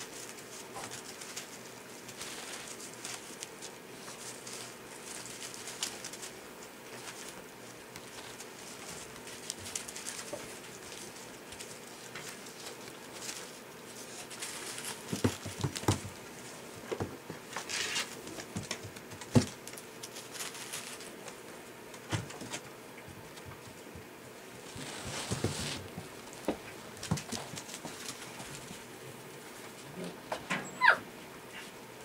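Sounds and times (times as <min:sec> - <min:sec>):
rustling in wood shavings: 0:00.0 - 0:32.0
paws knocking wooden boards: 0:15.0 - 0:16.2, 0:25.3 - 0:28.6.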